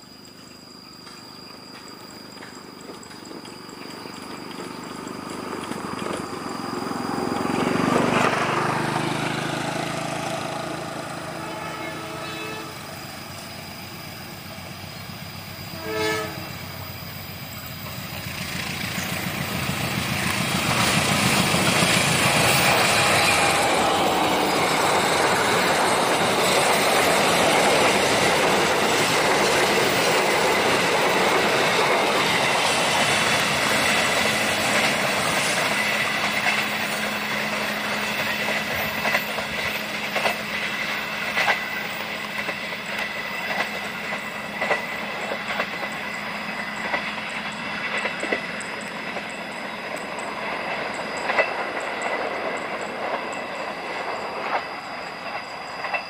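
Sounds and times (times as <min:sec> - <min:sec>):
train rushing past: 0:00.0 - 0:56.0
train wheels clattering: 0:01.0 - 0:56.0
vehicle passing: 0:06.6 - 0:11.4
train horn blast: 0:10.9 - 0:13.0, 0:15.7 - 0:16.7.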